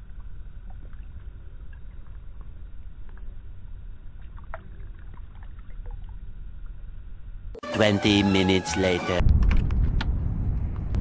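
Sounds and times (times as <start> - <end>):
steady low rumble: 9.2 - 11.0.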